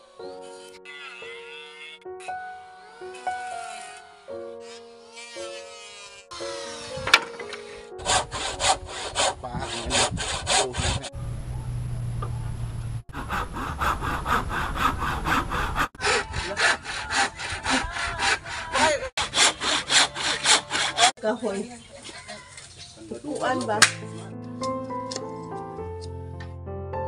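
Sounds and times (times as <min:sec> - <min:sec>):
hand saw cutting wood: 0:00.3 - 0:11.1, 0:13.1 - 0:21.2.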